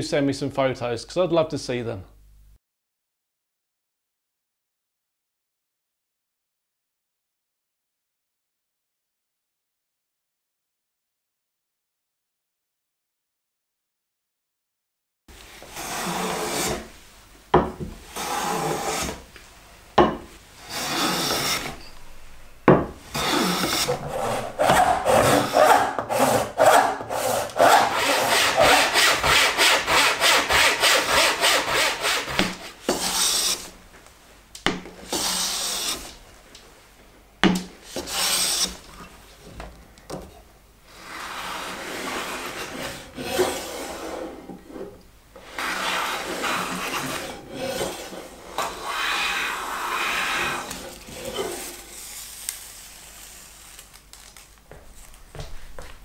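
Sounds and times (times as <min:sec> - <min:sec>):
hand plane shaving wood: 0:15.6 - 0:16.9, 0:18.1 - 0:19.3, 0:20.6 - 0:21.8, 0:23.1 - 0:33.7, 0:35.0 - 0:36.2, 0:37.9 - 0:38.8, 0:41.0 - 0:44.8, 0:45.4 - 0:52.0.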